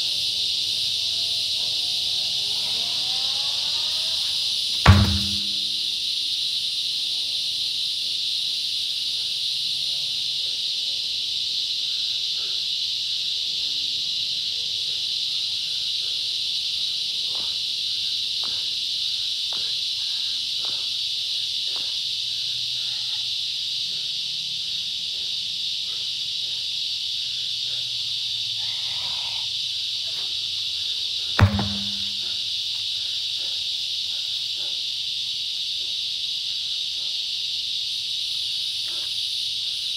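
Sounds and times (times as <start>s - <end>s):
high insect chorus: 0.0s - 39.9s
heavy thud of tire dropping: 4.8s - 5.8s, 31.4s - 32.3s.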